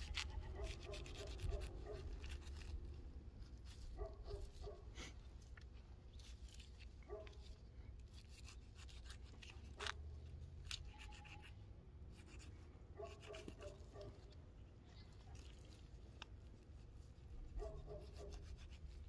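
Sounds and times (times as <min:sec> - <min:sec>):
knife cutting meat: 0:00.0 - 0:02.8.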